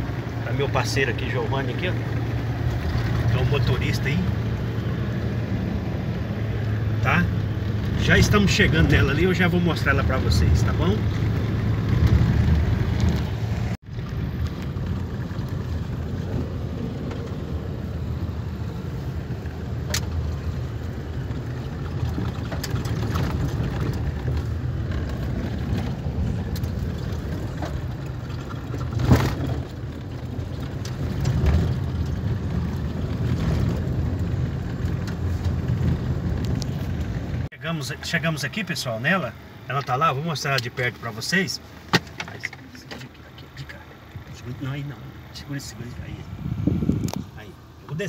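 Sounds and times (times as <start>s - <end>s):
car engine and tyre rumble: 0.0s - 48.0s
knocks and rattles from bumps: 21.2s - 37.5s.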